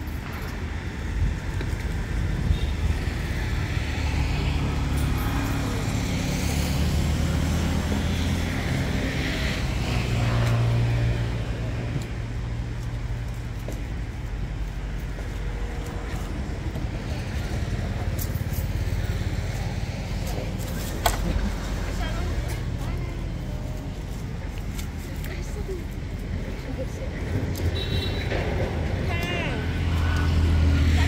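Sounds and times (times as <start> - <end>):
road noise: 0.0 - 31.0
vehicle engine passing by: 3.2 - 12.2, 28.2 - 31.0.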